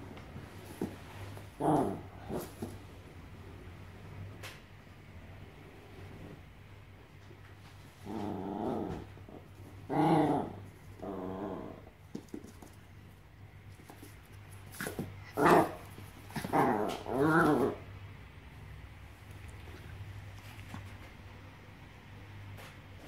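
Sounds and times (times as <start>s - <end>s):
dog play-growling: 0.1s - 2.9s, 7.7s - 12.8s, 13.8s - 18.1s, 19.2s - 21.3s.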